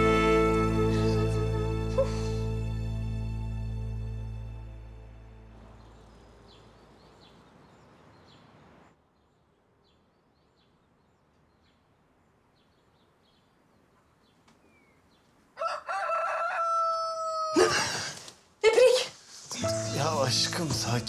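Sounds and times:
faint bird chirps: 12.6s - 15.3s
rooster crowing: 15.6s - 17.8s
faint music: 19.5s - 21.0s.

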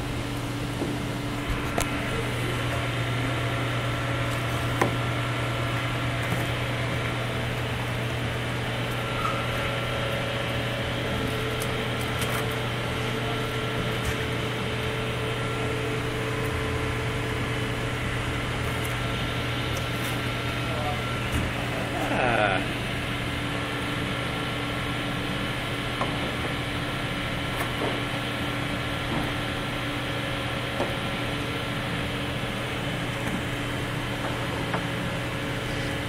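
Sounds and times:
low mechanical hum: 0.0s - 36.0s.

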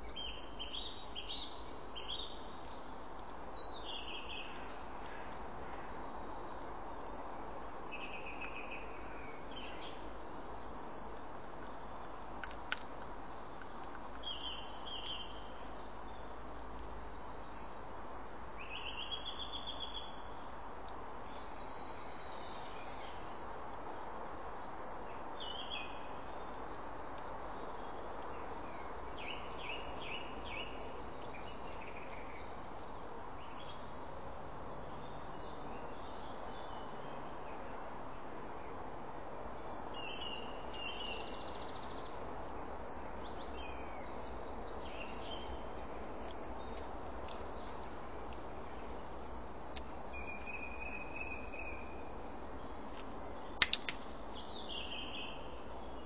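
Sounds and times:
small birds chirping: 0.0s - 18.0s, 18.6s - 37.8s, 39.7s - 56.0s
background hiss: 0.0s - 56.0s
sharp click: 53.6s - 54.1s.

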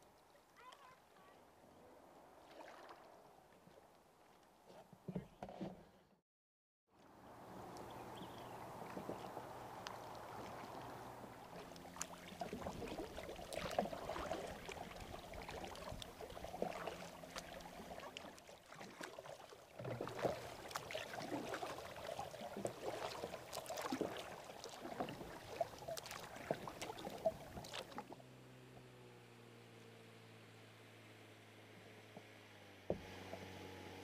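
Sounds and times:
paddle splashing water: 2.2s - 6.1s, 7.0s - 29.0s, 32.0s - 34.0s
small clicks and drips: 7.6s - 28.9s.

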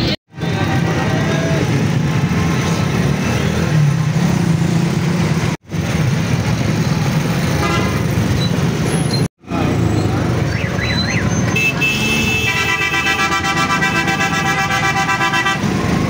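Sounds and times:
engine and road noise: 0.0s - 16.0s
horn honk: 7.6s - 8.1s, 10.8s - 15.7s.

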